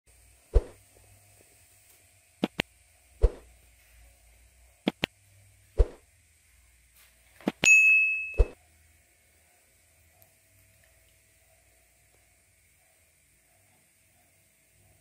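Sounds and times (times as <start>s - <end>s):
bell ding: 7.6s - 8.6s.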